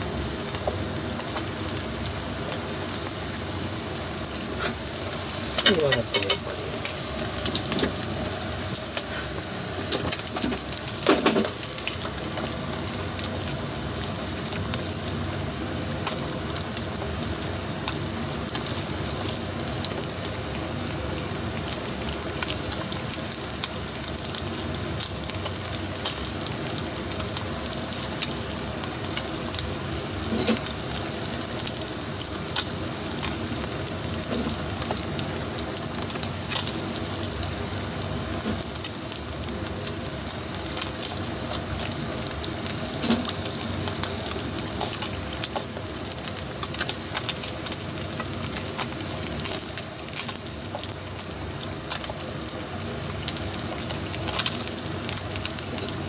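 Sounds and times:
fish deep-frying in oil: 0.0s - 56.0s.

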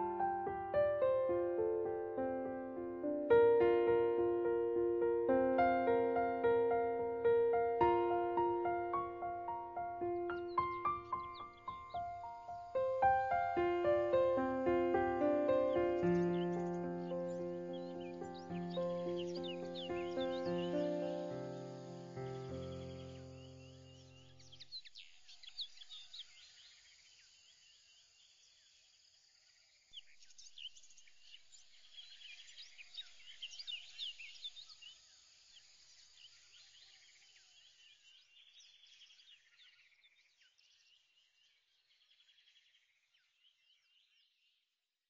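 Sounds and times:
held music chord: 0.0s - 23.4s
birds chirping: 0.0s - 26.3s.

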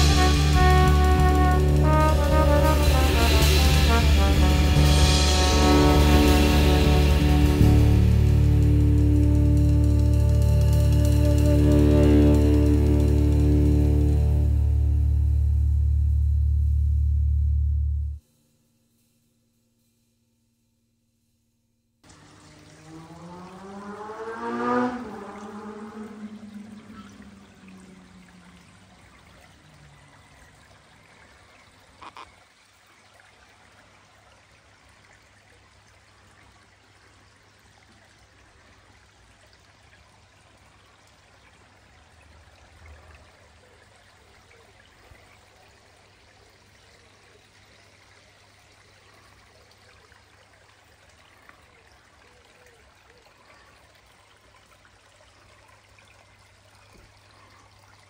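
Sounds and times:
water trickling over rocks: 22.0s - 58.0s.

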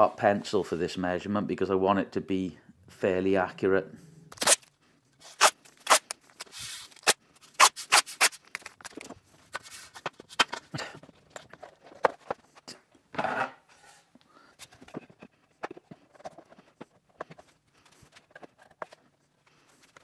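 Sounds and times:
tape tearing: 4.3s - 10.0s.

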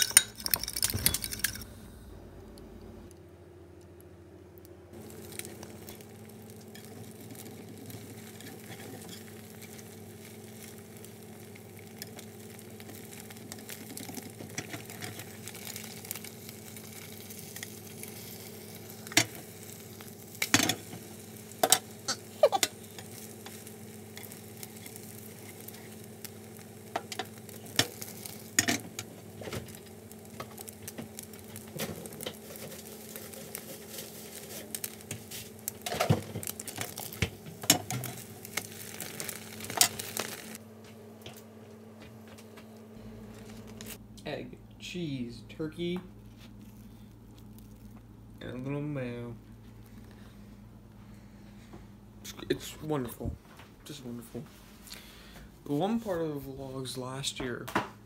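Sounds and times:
eggs sizzling in a pan: 0.0s - 2.3s, 4.9s - 40.6s, 46.2s - 52.6s.

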